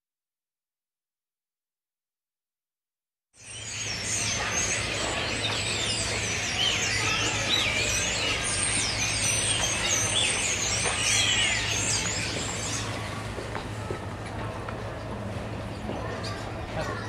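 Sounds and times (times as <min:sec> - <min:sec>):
small birds chirping: 0:03.4 - 0:13.4.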